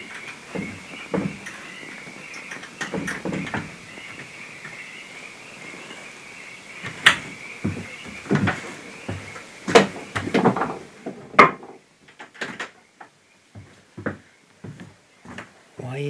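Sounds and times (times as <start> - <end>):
night wildlife chorus: 0.0 - 16.0
wooden door knocks and clunks: 0.5 - 1.5, 2.8 - 3.8, 6.9 - 12.8.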